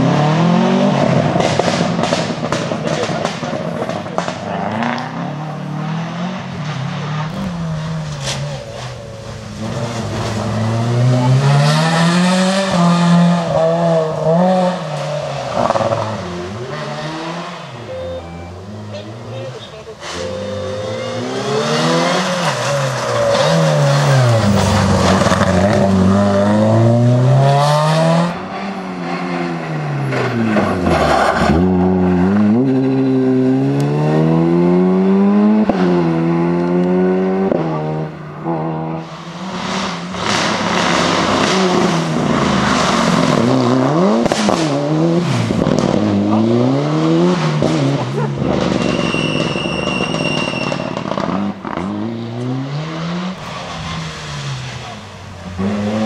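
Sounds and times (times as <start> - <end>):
rally car engines revving: 0.0 - 56.0
steady high tone: 17.8 - 19.5.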